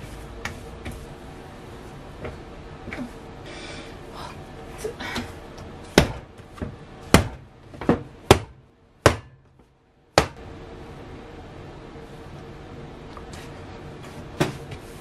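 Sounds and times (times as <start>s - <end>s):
dough slapped on wooden board: 7.1s - 9.4s, 10.2s - 10.4s.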